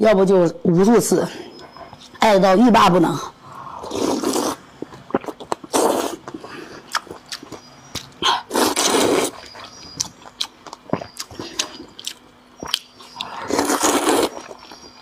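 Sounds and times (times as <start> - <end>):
person slurping noodles: 3.6 - 7.0, 8.2 - 9.5, 13.3 - 14.6
chewing and lip smacks: 4.2 - 15.0.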